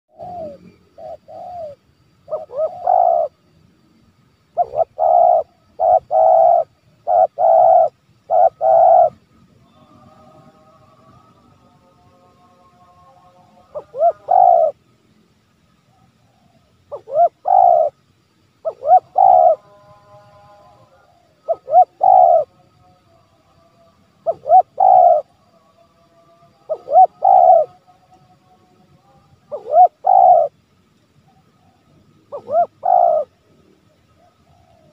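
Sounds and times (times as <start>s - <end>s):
dove cooing: 0.1s - 3.4s, 4.5s - 11.4s, 13.6s - 14.8s, 15.9s - 18.0s, 18.6s - 22.6s, 24.2s - 25.4s, 26.6s - 27.9s, 29.4s - 30.6s, 31.3s - 34.9s.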